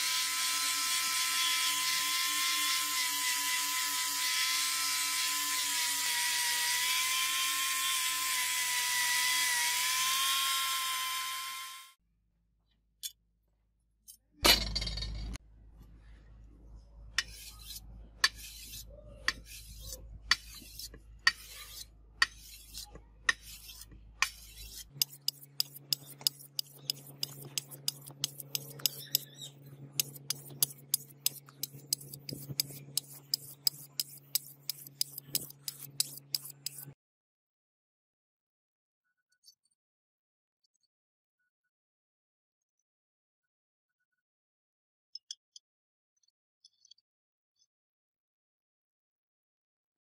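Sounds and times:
sharpening stone scraping blade: 17.2s - 37.0s.

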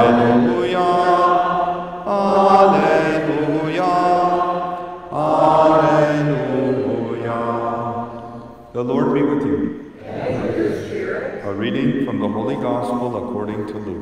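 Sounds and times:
man chanting: 8.7s - 9.8s, 11.4s - 14.0s.

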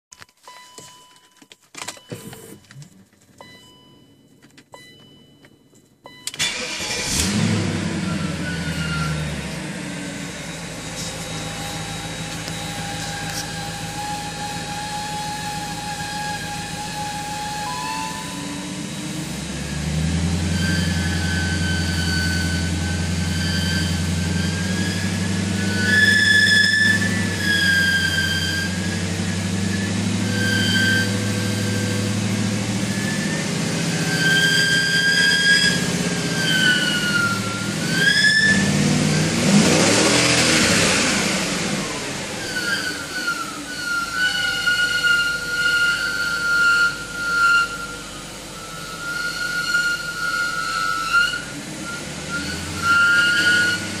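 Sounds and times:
car engine idling: 2.2s - 54.0s
belt pulley squeal and whistle: 6.1s - 7.3s, 8.0s - 9.3s, 11.0s - 38.9s, 41.8s - 54.0s
engine noise rush: 6.2s - 47.2s.

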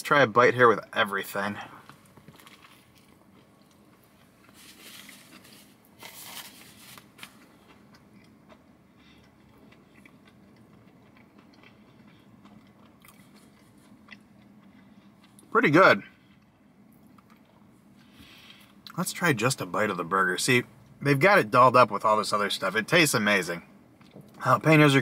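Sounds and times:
person chewing crunchy food: 1.8s - 15.5s, 16.2s - 18.9s.

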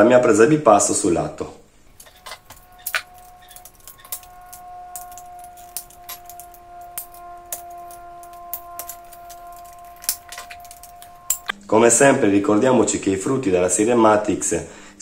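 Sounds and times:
faint background music: 3.2s - 15.0s.

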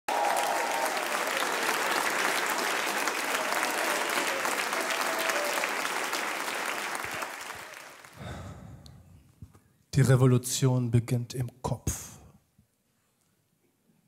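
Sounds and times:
audience applauding: 0.1s - 8.6s.

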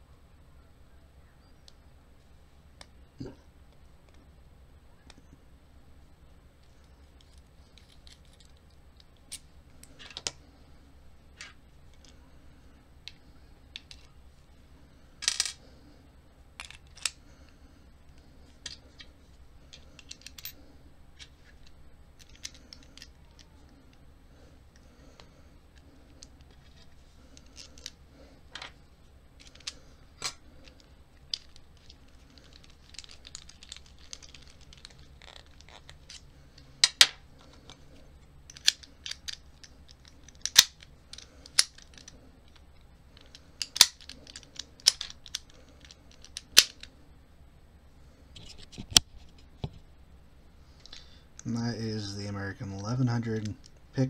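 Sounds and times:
metallic clicks of padlock parts: 38.5s - 42.6s.

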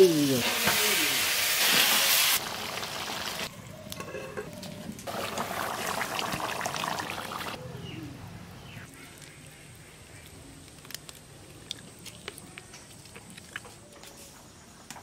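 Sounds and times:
chicken sizzling in hot oil: 0.0s - 3.5s, 5.1s - 7.6s.

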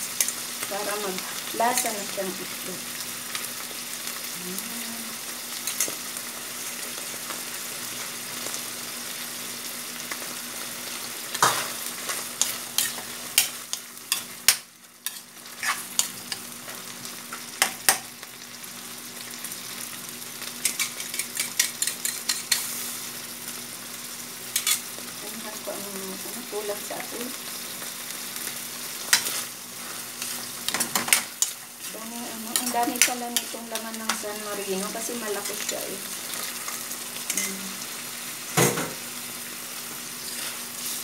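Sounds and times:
food sizzling in a wok: 0.0s - 41.0s
spatula scraping wok: 11.4s - 16.8s, 28.4s - 37.8s, 40.2s - 41.0s.

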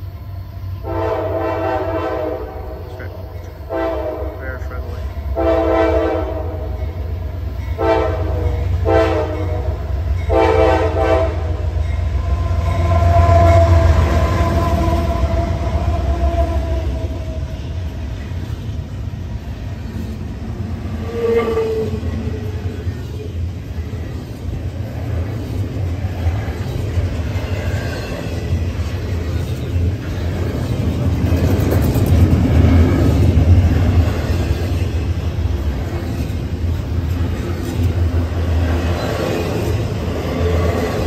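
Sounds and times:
locomotive air horn blasts: 0.8s - 3.1s, 3.7s - 4.7s, 5.4s - 6.8s, 7.8s - 11.8s
locomotive engine rumble: 2.4s - 5.5s, 11.5s - 41.0s
freight cars rumbling and rattling: 11.8s - 41.0s.

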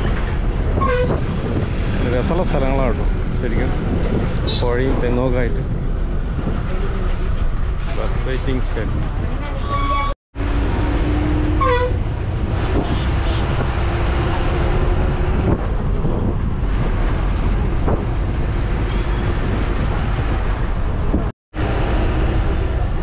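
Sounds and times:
bus engine and tyres rumbling: 0.0s - 23.0s.

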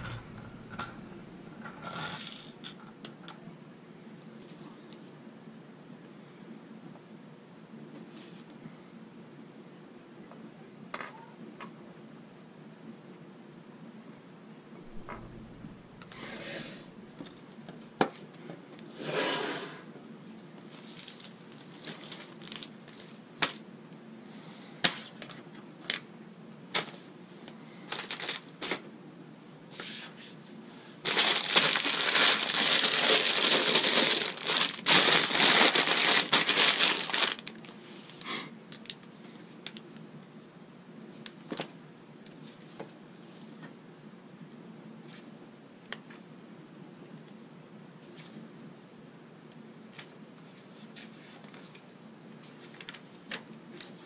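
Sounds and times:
plastic bags crinkling: 0.0s - 1.8s, 20.7s - 23.2s, 27.9s - 28.8s, 31.0s - 37.8s.

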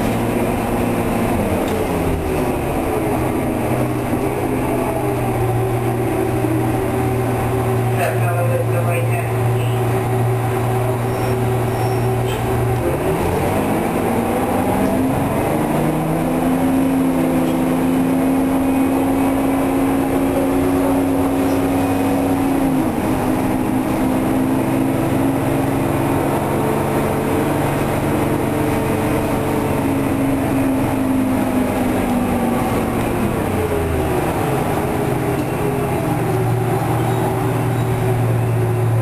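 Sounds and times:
bus diesel engine pulling: 0.0s - 39.0s.

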